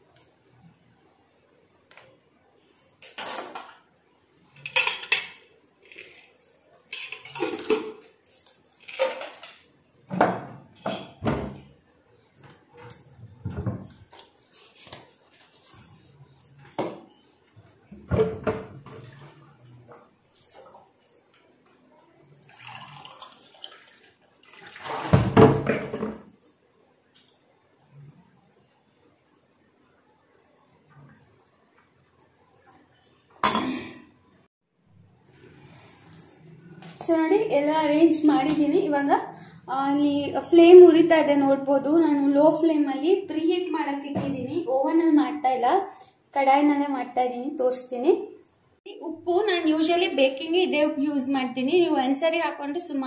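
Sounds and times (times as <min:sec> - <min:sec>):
metal pots clinking and scraping: 0:04.6 - 0:08.1, 0:08.8 - 0:11.6.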